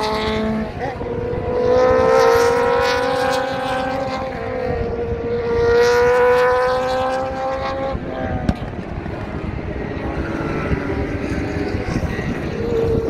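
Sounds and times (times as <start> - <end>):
race cars passing: 0.0 - 13.0.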